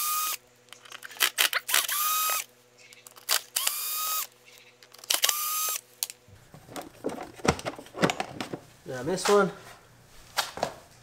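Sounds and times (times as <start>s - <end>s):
cordless drill motor whine: 0.0s - 0.4s, 1.7s - 2.5s, 3.3s - 4.3s, 5.1s - 5.8s.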